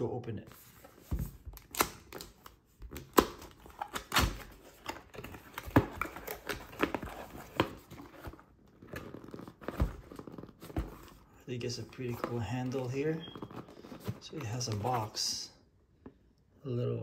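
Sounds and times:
cardboard box being opened: 3.4 - 15.2.

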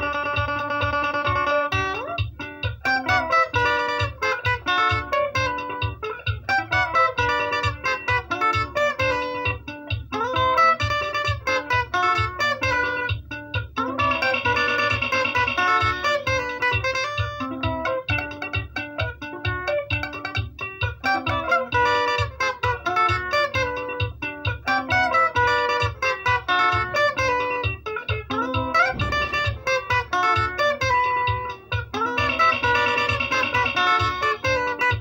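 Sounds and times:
guitar chord ringing: 0.0 - 35.0
lead guitar melody: 0.0 - 35.0
low bass pulse: 28.9 - 29.7.

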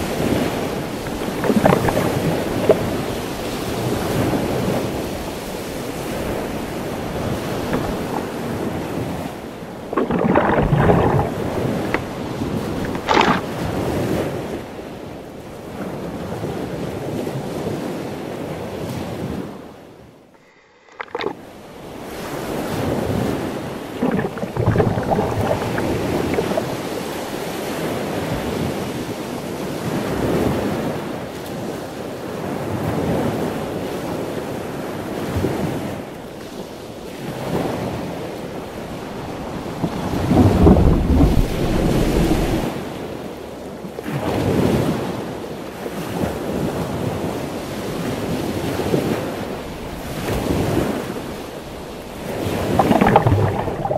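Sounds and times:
wind on microphone: 0.0 - 14.6, 21.0 - 28.9, 37.4 - 42.8
ocean waves breaking: 0.0 - 18.1, 20.4 - 30.9, 32.4 - 43.5, 46.0 - 53.9.

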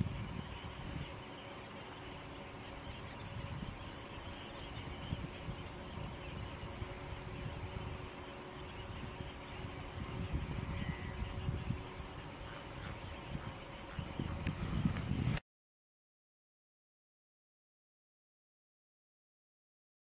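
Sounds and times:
faint steady hum and hiss: 0.0 - 15.3
wind buffeting microphone: 0.0 - 15.4.

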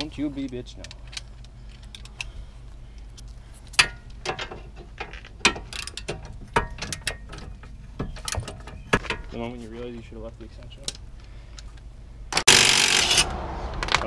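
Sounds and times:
metal knocks: 3.8 - 9.4.

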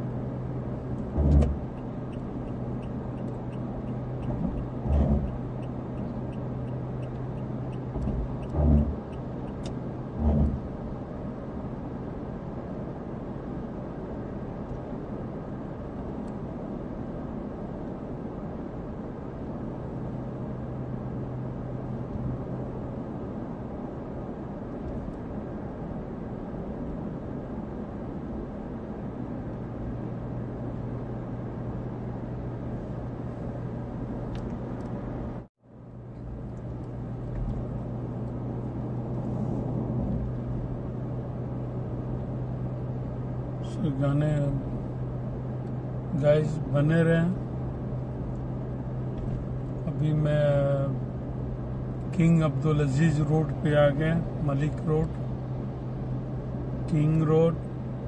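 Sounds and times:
car road rumble: 0.0 - 58.0
dull thumps: 1.1 - 1.6, 8.0 - 9.0.

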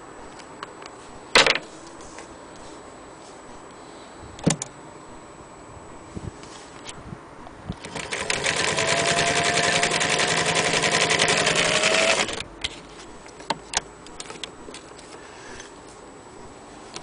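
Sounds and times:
sewing machine stitching: 7.8 - 12.4.

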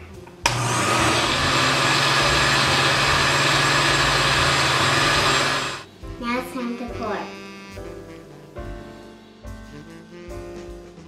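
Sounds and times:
blender running: 0.4 - 5.9.

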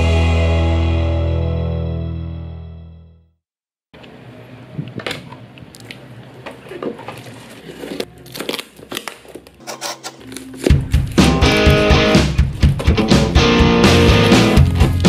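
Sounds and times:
guitar background music: 0.0 - 2.7, 10.3 - 15.0
packing tape crinkling: 7.2 - 11.3, 13.9 - 15.0.

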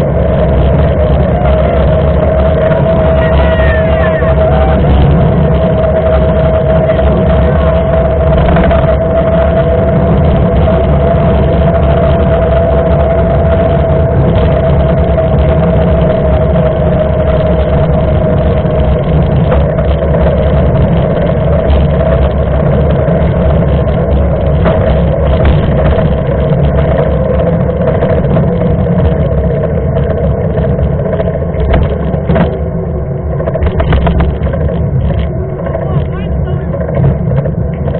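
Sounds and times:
bike tyres humming on asphalt: 0.0 - 37.9
wind rushing over microphone: 0.0 - 37.9.

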